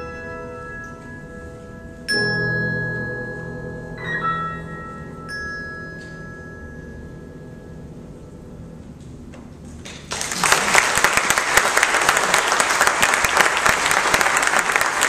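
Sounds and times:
audience applauding: 9.9s - 15.0s.

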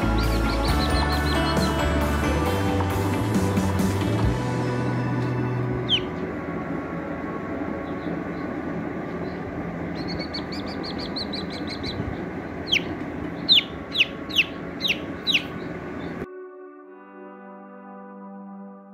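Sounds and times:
chick peeping: 0.0s - 1.8s, 5.8s - 6.2s, 7.8s - 16.2s.

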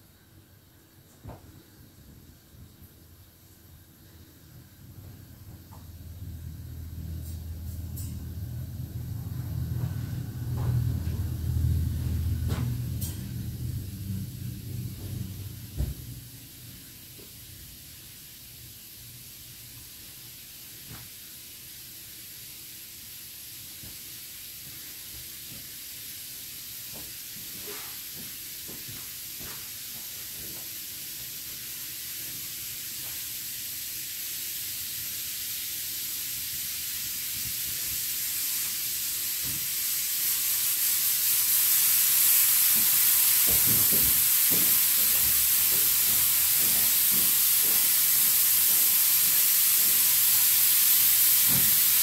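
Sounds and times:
steady high hiss: 0.0s - 52.0s.

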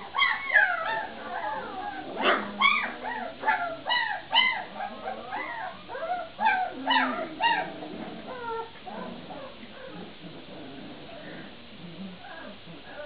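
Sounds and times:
puppies yipping and whimpering: 0.0s - 10.4s.

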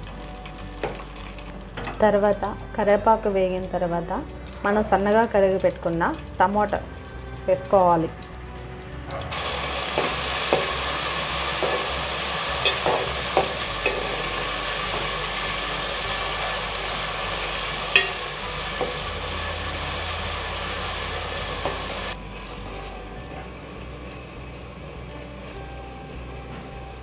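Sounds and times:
tomatoes sizzling in hot oil: 0.0s - 27.0s
spoon knocking against pan: 11.6s - 11.9s, 12.6s - 14.3s, 17.9s - 19.0s.

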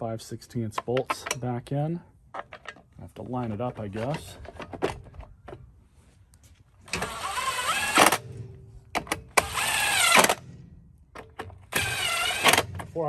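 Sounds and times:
impact driver running: 6.9s - 10.7s, 11.7s - 13.0s.

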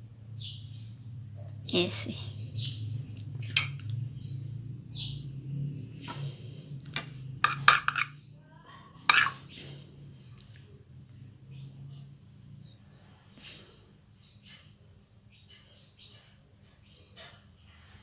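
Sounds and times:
cutlery clinking on ceramic bowl: 7.4s - 8.2s, 9.1s - 9.5s.

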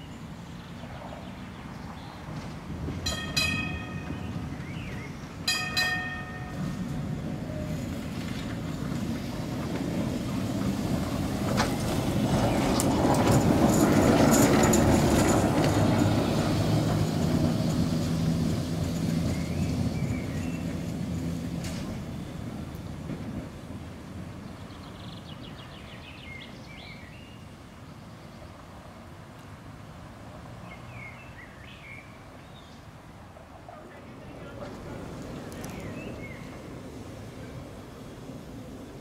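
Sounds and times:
tram rumbling past: 0.0s - 39.0s
wheels clicking over rails: 2.3s - 24.2s
tram warning tones: 2.4s - 24.4s.

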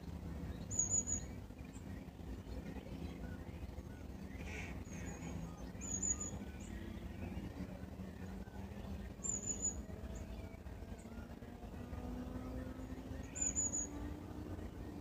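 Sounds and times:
faint low hum: 0.0s - 15.0s
bird whistled calls: 0.6s - 1.4s, 3.9s - 6.8s, 9.2s - 9.9s, 13.2s - 14.1s.

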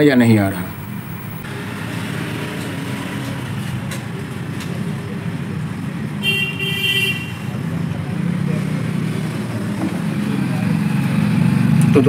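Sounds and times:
road traffic noise: 0.0s - 12.0s
vehicle horn tooting: 6.2s - 7.5s.

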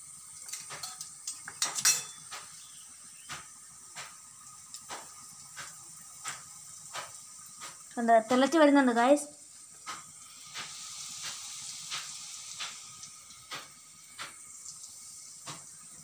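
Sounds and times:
steel kitchenware clinking: 0.4s - 2.4s.

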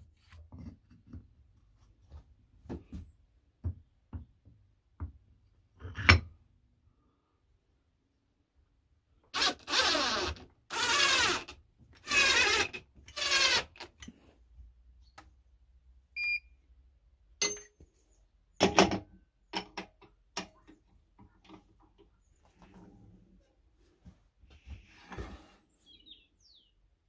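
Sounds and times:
cordless drill driving screws: 9.4s - 13.9s
metal clanks and knocks: 18.6s - 21.7s.

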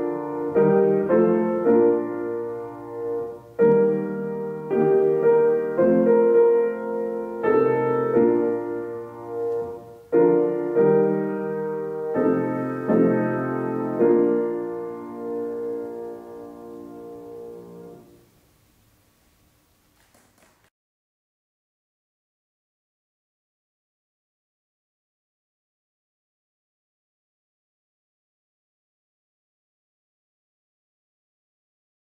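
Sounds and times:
slow piano chords: 0.0s - 18.7s.

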